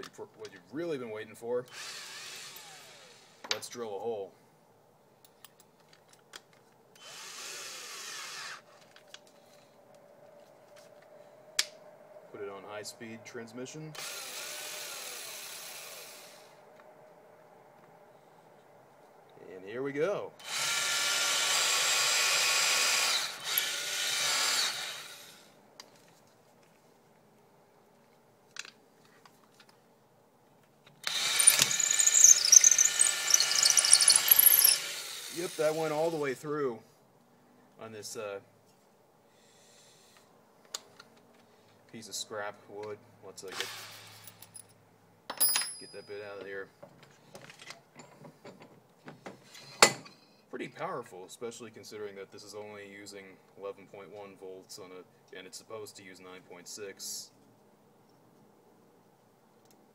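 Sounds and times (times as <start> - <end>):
cordless drill motor spinning: 1.7 - 3.4, 7.0 - 8.8, 20.4 - 25.4, 31.0 - 35.8
drill chuck clicks: 31.0 - 34.8
high squeal: 31.4 - 34.8.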